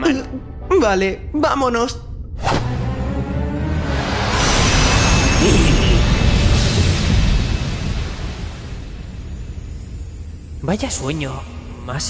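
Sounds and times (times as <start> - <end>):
rushing teleport sound effect: 3.6 - 9.0.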